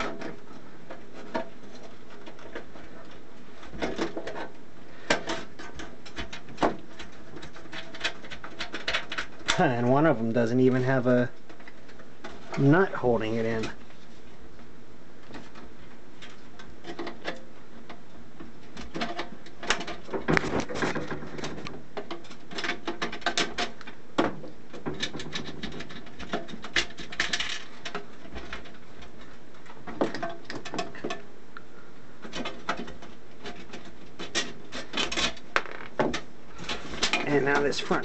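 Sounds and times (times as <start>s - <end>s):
tools clicking and rattling on metal: 0.0s - 10.2s, 18.7s - 31.3s, 32.2s - 38.0s.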